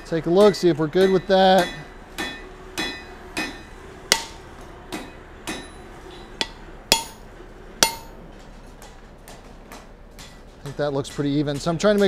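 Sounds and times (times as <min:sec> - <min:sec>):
hammer striking metal punch: 0:01.0 - 0:05.8, 0:06.4 - 0:07.2, 0:07.8 - 0:08.2.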